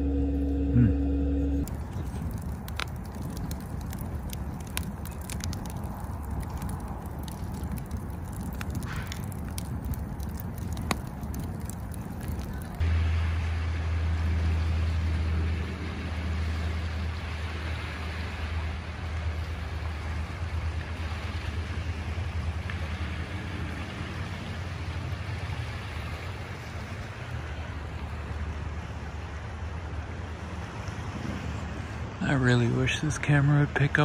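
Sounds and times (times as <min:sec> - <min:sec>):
low rumble: 0:00.0 - 0:03.6, 0:10.3 - 0:25.0
sea water washing on shore: 0:01.6 - 0:34.0.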